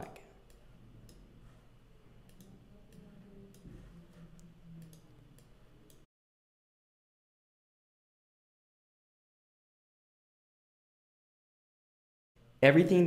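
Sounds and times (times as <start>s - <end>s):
computer mouse clicks: 0.0s - 1.3s, 2.2s - 6.1s.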